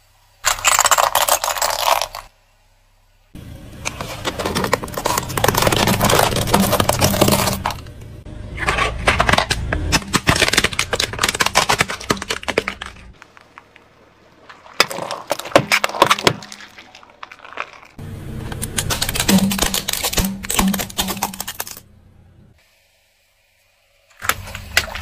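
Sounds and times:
plastic crackling and snapping: 9.1s - 21.8s.

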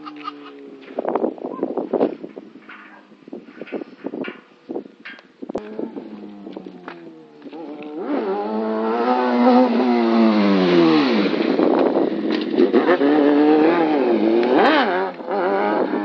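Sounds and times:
motorcycle engine revving: 5.5s - 16.0s.

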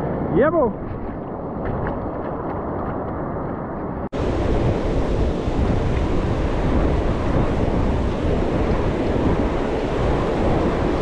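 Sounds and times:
wind buffeting microphone: 0.0s - 11.0s
breaking surf: 4.2s - 11.0s.

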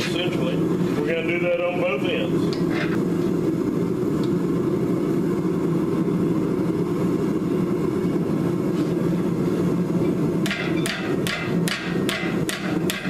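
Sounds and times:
gas torch flame rushing: 0.0s - 13.0s.

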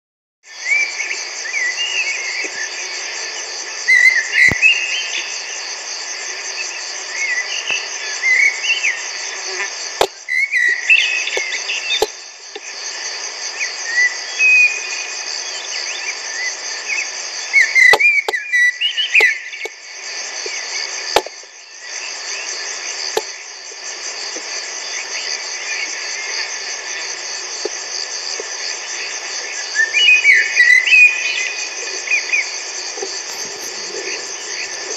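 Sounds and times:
crickets chirping: 0.5s - 34.9s
blackbird singing: 33.3s - 34.8s.

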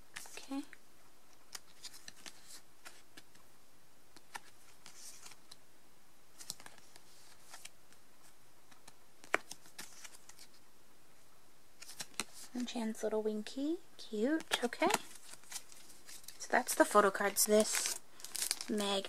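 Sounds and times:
photo cards clicking: 8.7s - 10.6s.

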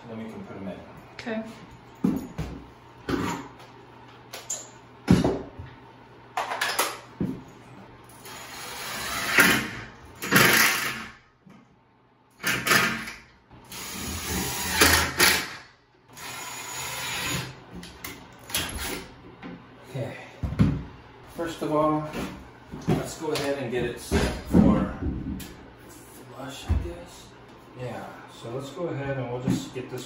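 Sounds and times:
cordless drill driving screws: 13.7s - 15.6s, 16.2s - 17.5s.

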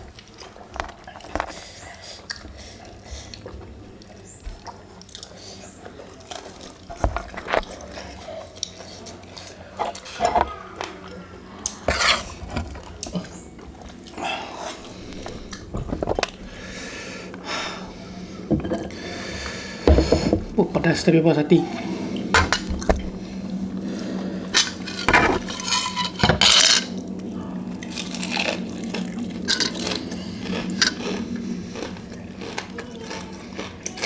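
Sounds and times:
chewing food: 0.0s - 16.4s, 26.9s - 34.0s.

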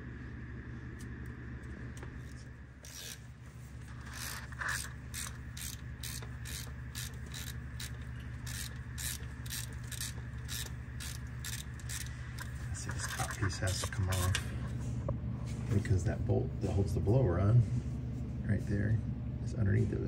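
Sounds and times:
low steady hum: 0.0s - 20.0s
ratchet wrench pawl clicking: 2.8s - 3.2s, 3.9s - 13.4s.

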